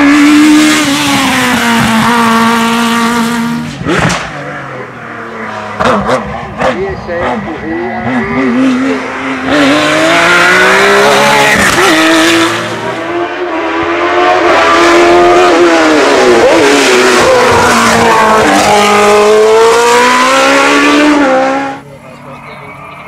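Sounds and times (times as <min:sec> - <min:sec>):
racing engines at full throttle: 0:00.0 - 0:23.0.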